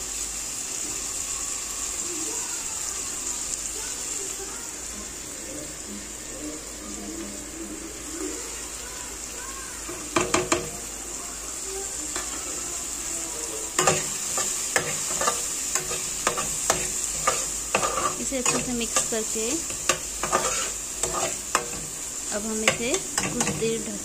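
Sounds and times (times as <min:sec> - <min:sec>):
vegetables sizzling in oil: 0:00.0 - 0:24.0
spatula scraping and knocking pan: 0:09.8 - 0:10.8, 0:13.8 - 0:23.9.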